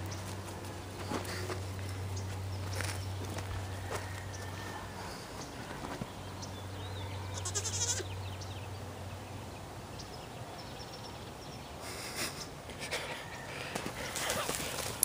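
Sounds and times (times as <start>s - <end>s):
hooves scuffing in loose dirt: 0.0s - 6.3s, 13.6s - 15.0s
goat bleating: 7.3s - 8.2s.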